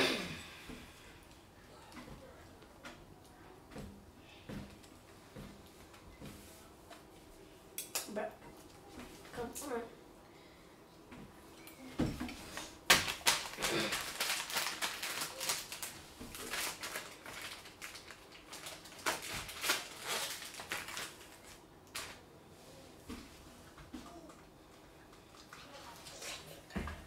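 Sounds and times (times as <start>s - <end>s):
candy packaging crinkling: 12.6s - 22.2s.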